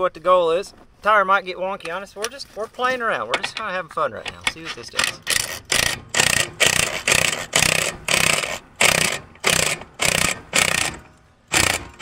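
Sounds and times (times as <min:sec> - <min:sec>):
impact driver bursts: 0:05.1 - 0:12.0.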